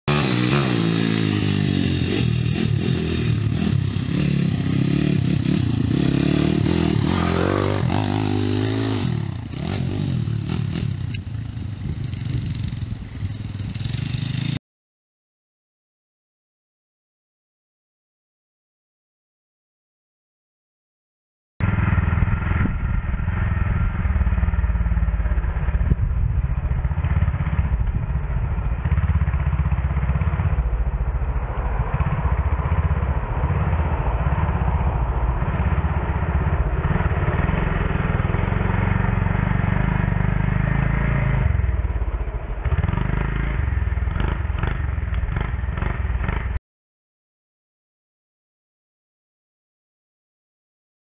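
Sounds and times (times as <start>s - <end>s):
motorbike engine running: 0.1s - 14.6s, 21.6s - 46.6s.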